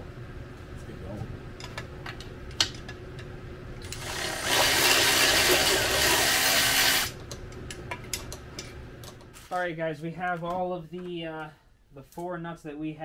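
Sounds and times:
power ratchet spinning: 0:03.8 - 0:07.2.

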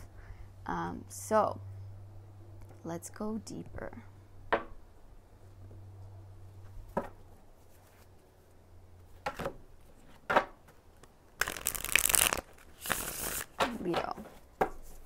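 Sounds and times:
faint low hum: 0:00.0 - 0:11.3.

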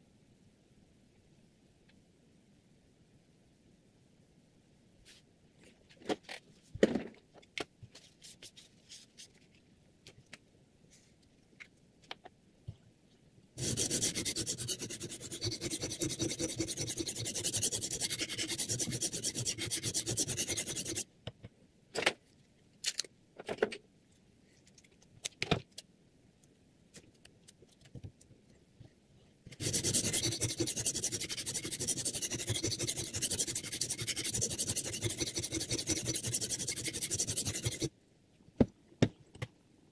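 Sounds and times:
sharpening stone rubbing on knife blade: 0:13.6 - 0:21.0, 0:29.6 - 0:37.9.

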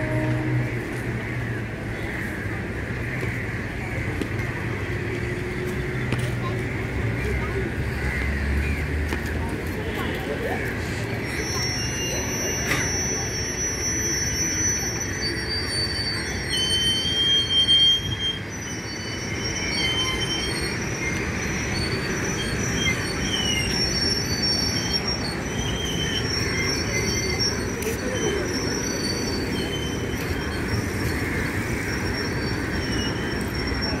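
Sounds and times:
train rumbling: 0:00.0 - 0:34.0
train wheels squealing: 0:09.5 - 0:34.0.

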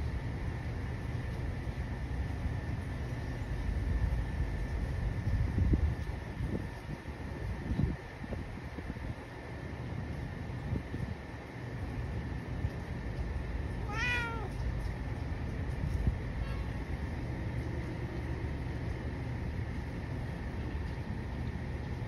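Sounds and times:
low background rumble: 0:00.0 - 0:22.0
cat meowing: 0:13.8 - 0:14.6.

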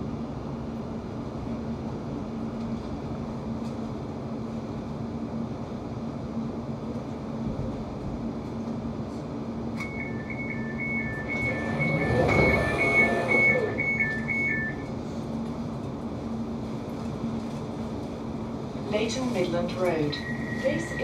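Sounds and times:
train low hum: 0:00.0 - 0:21.0
rushing noise: 0:09.8 - 0:14.9
two-tone door warning beep: 0:09.8 - 0:14.9, 0:19.9 - 0:21.0.

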